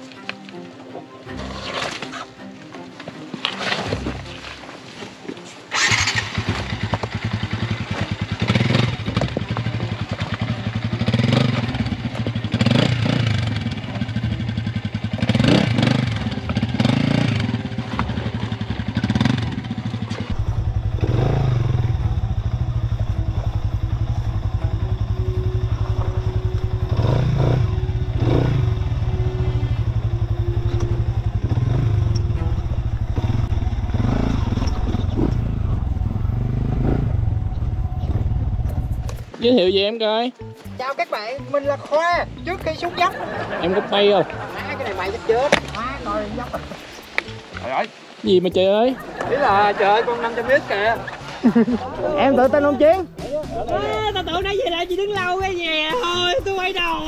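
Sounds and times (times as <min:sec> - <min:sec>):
motorcycle engine revving: 0:05.7 - 0:39.7.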